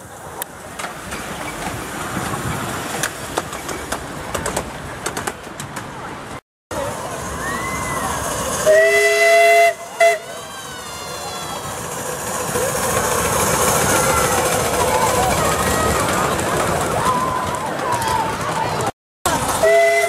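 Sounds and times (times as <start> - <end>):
wheels clicking on rails: 0.0 - 20.0
miniature steam locomotive running: 6.7 - 20.0
steam whistle chord: 8.6 - 10.4.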